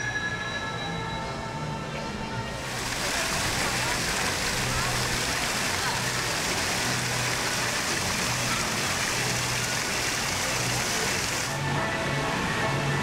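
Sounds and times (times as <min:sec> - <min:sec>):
fountain water splashing: 0:02.6 - 0:11.6.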